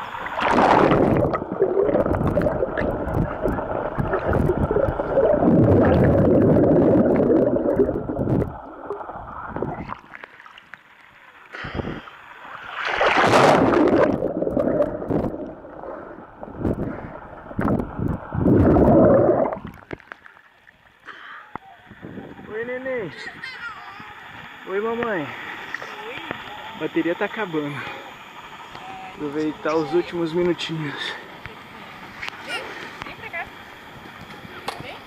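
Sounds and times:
underwater water rushing: 0.0 - 21.0.

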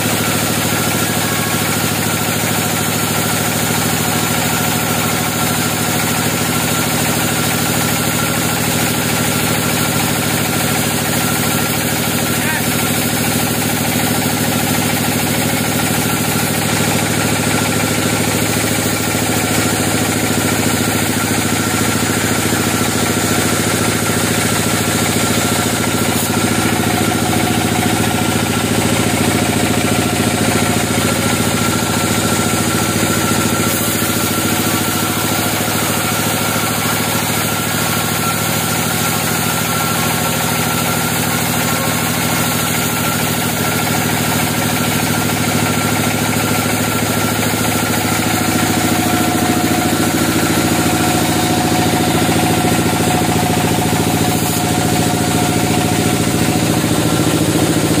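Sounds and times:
band saw drone: 0.0 - 8.4, 11.6 - 45.2, 45.8 - 58.0
saw blade cutting hiss: 33.0 - 37.8.

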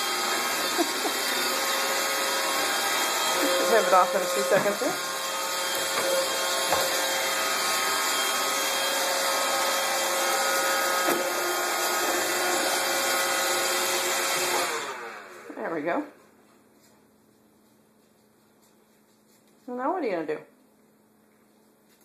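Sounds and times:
robot vacuum whirring: 0.0 - 15.4.

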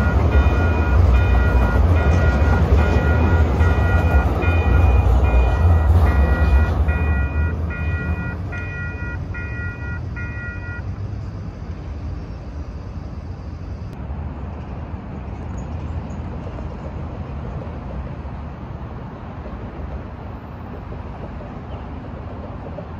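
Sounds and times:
electronic warning beeps: 0.0 - 14.0
light-rail train moving: 0.0 - 22.9
street traffic rumble: 0.0 - 22.9.

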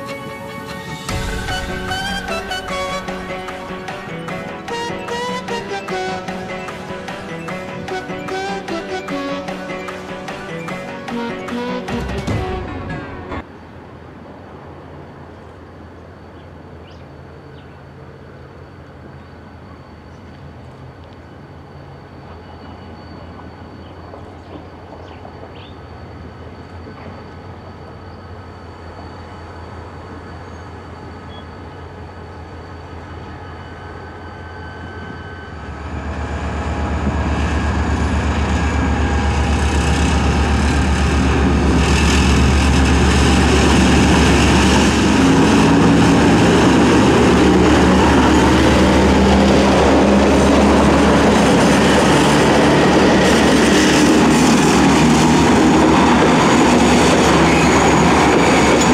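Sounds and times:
locomotive engine running: 0.0 - 13.5, 28.4 - 58.9
train wheels clattering over rails: 36.4 - 58.9.

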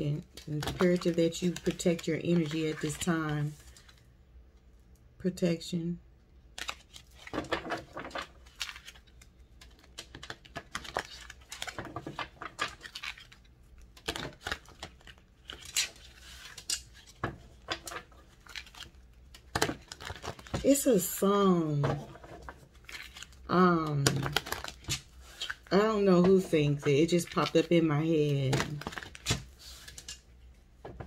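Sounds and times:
playing cards being shuffled: 6.5 - 30.2.

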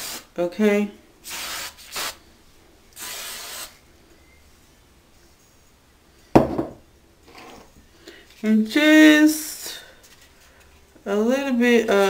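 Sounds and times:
aerosol spray hissing: 1.2 - 2.2, 3.0 - 3.7
loud thump: 6.4 - 6.8.

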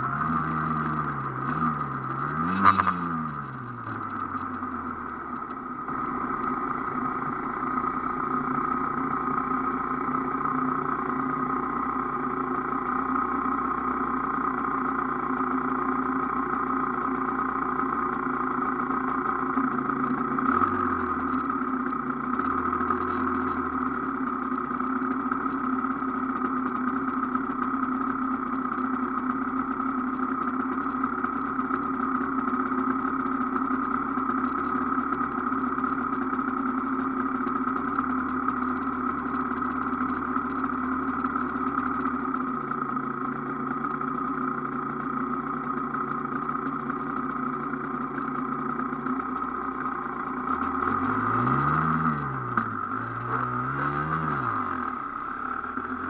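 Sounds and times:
motorcycle engine idling and revving: 0.0 - 56.0.

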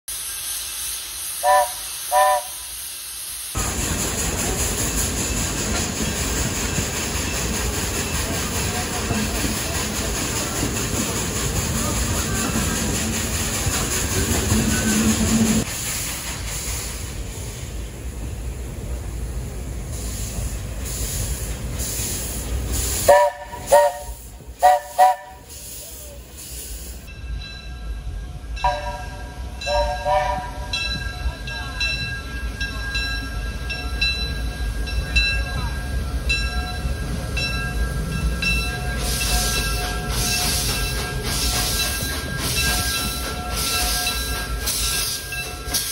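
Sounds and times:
steam locomotive venting steam: 0.1 - 45.9
train rolling along track: 0.1 - 45.9
steam whistle blasts: 1.4 - 2.9, 23.0 - 25.5, 28.6 - 30.7.

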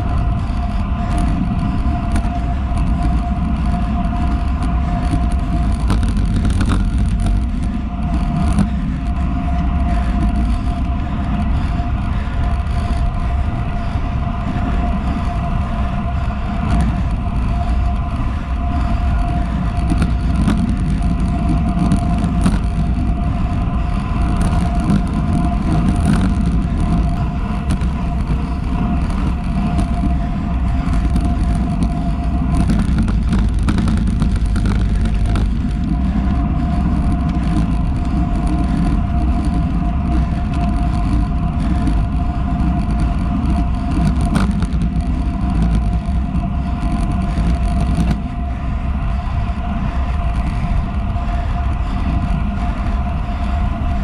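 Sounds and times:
steady thin whine: 0.0 - 54.0
tyre noise on asphalt: 0.0 - 54.0
wind rushing over microphone: 0.0 - 54.0.

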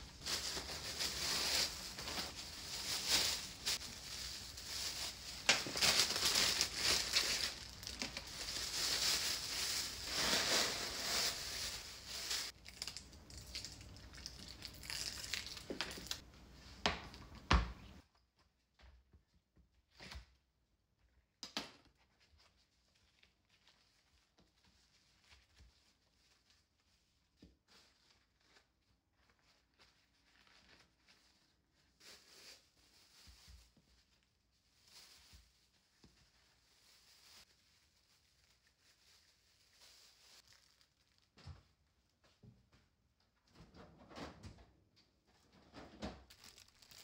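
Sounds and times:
plastic bag crinkling: 0.0 - 16.2, 27.7 - 41.4, 46.3 - 47.0
kitchen paper rustling: 0.0 - 17.3, 21.9 - 42.2, 46.2 - 47.0.

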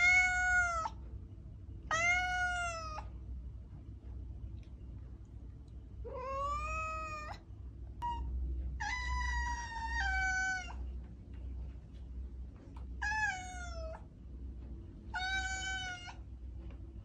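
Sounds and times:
cat meowing: 0.0 - 1.0, 1.9 - 3.1, 6.0 - 7.4, 8.0 - 10.8, 13.0 - 14.0, 15.1 - 16.2.

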